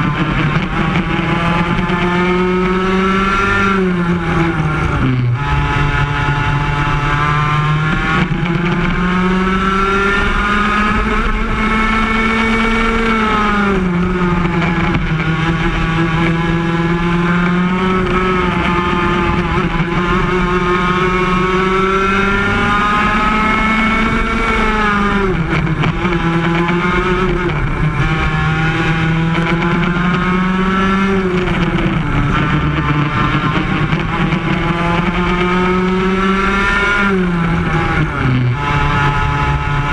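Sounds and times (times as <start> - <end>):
kart engine at racing speed: 0.0 - 39.9.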